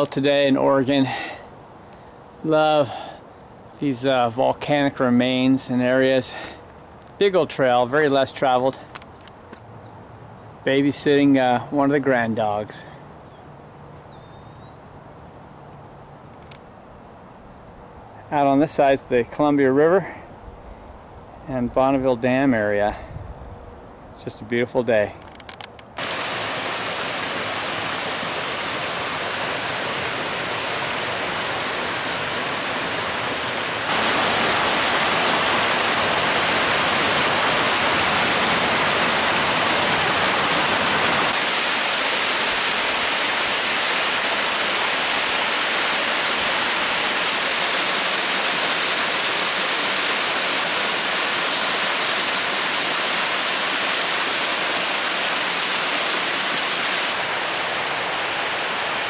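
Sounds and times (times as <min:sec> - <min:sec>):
creek and waterfall rushing: 0:26.0 - 0:59.0.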